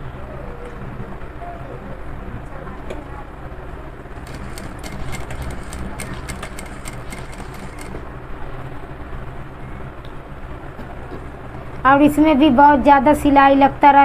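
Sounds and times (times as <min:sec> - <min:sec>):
sewing machine needle clicks: 0:04.2 - 0:08.0.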